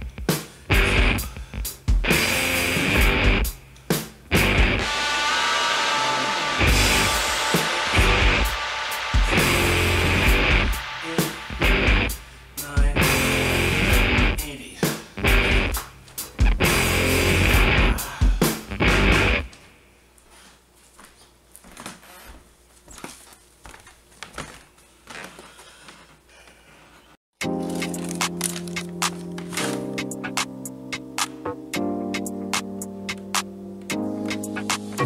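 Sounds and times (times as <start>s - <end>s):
heavy rock music: 0.0s - 3.6s, 4.3s - 19.5s
drums: 0.0s - 19.5s, 27.4s - 35.0s
electric guitar: 0.7s - 1.3s, 2.0s - 3.6s, 4.3s - 12.3s, 12.9s - 14.4s, 15.2s - 15.8s, 16.4s - 18.0s, 18.7s - 19.5s
barefoot footfalls on wooden floor: 20.9s - 25.6s.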